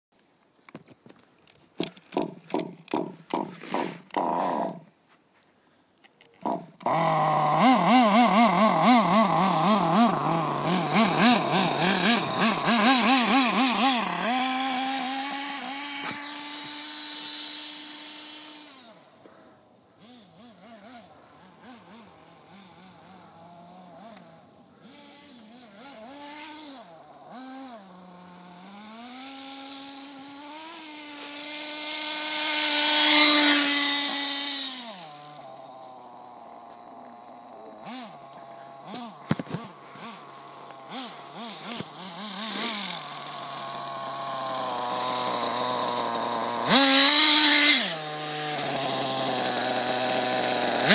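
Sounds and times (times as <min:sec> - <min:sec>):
toy car electric motor whining: 0:01.8 - 0:04.8, 0:06.4 - 0:19.2, 0:20.0 - 0:50.9.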